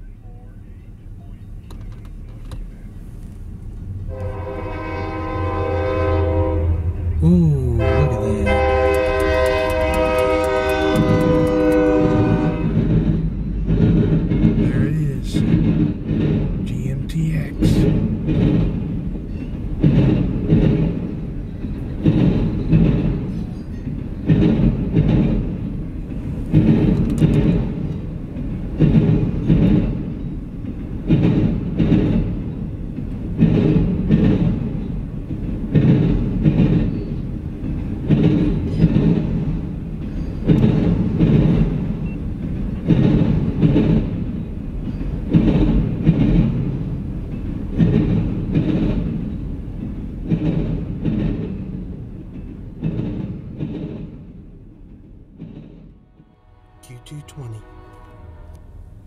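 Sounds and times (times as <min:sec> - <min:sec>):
freight train rumble: 0:00.0 - 0:59.0
train wheel clacks: 0:08.5 - 0:16.7, 0:17.3 - 0:56.0.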